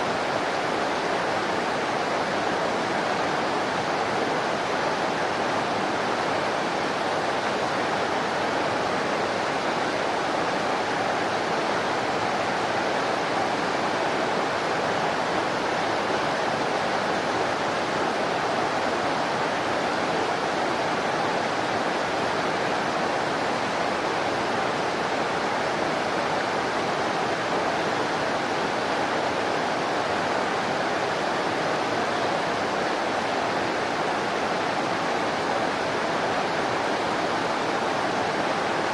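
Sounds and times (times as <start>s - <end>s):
whitewater rushing in river: 0.0s - 38.9s.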